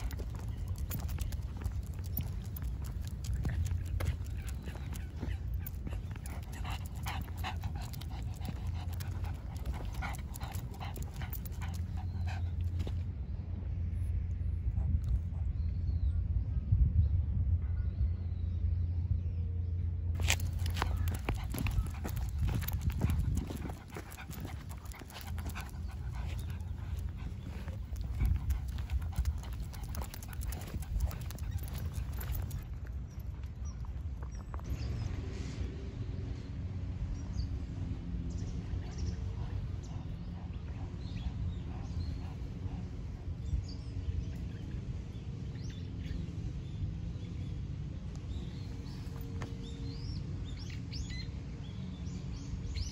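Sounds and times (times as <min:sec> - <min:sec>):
dog panting: 0:00.0 - 0:13.0, 0:20.2 - 0:33.5
paws ticking on asphalt: 0:00.0 - 0:13.1, 0:20.2 - 0:35.0, 0:38.3 - 0:47.2, 0:48.0 - 0:52.9
steady low rumble: 0:00.0 - 0:50.6.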